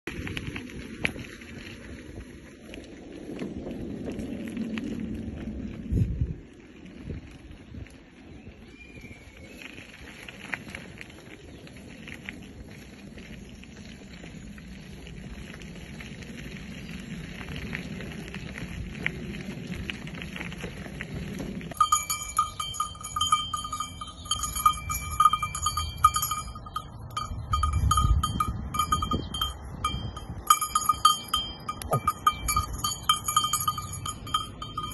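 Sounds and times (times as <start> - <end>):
cowbell clanging: 21.7 - 34.9.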